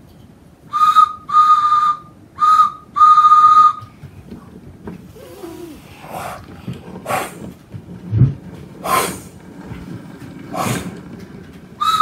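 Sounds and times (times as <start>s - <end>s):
steam train whistle toots: 0.7s - 3.9s, 11.8s - 12.0s.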